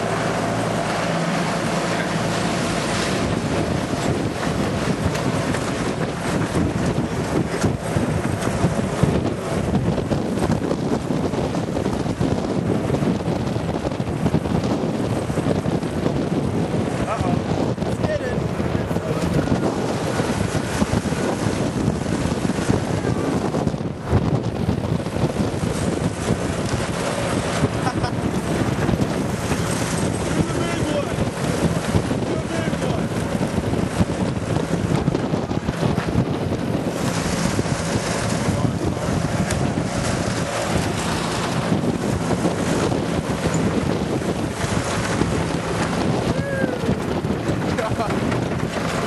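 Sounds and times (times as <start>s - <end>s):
lawnmower engine running: 0.0s - 9.6s, 25.8s - 34.0s, 36.7s - 46.2s
trailer rumbling over dirt: 0.0s - 49.0s
wind on microphone: 0.0s - 49.0s
trailer rattling over ground: 35.6s - 49.0s.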